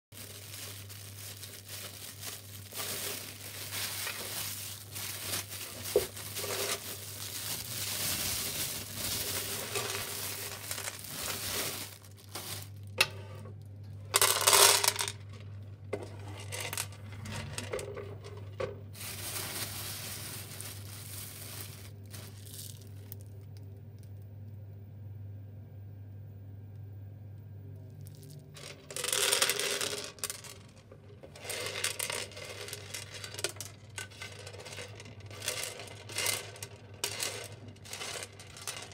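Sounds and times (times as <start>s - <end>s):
rush of pouring beans: 0.1s - 12.9s, 18.9s - 23.2s
plastic bag crinkling: 0.1s - 13.0s, 17.4s - 23.5s, 28.0s - 38.9s
dry beans clicking and rattling: 0.1s - 13.1s, 14.1s - 15.4s, 16.4s - 24.1s, 28.0s - 38.9s
steady low hum: 15.1s - 28.6s.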